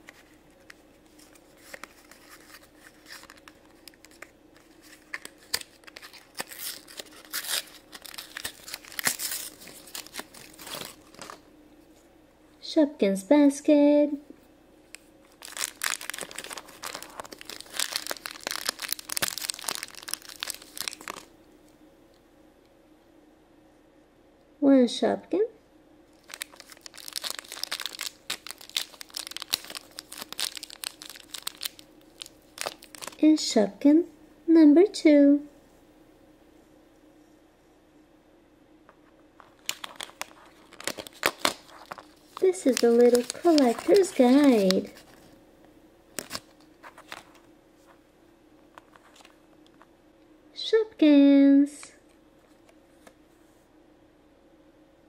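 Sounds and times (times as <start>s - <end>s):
plastic packaging crinkling and tearing: 0.0s - 11.4s, 15.2s - 21.3s, 26.1s - 33.2s, 39.4s - 45.4s, 46.2s - 47.4s
wrapper crackling and rustling: 0.0s - 11.4s, 15.2s - 21.3s, 26.1s - 33.2s, 39.4s - 45.4s, 46.2s - 47.4s.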